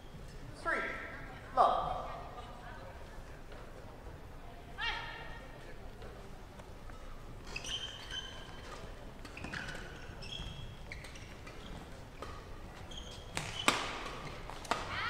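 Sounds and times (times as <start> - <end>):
shoes squeaking on court: 6.8 - 14.9
racket hitting shuttlecock: 13.3 - 15.0.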